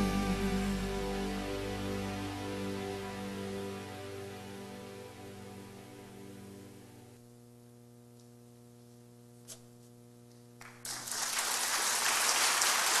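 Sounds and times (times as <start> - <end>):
song ending: 0.0 - 7.0
loud static hiss: 0.0 - 13.0
steady electrical hum: 0.0 - 13.0.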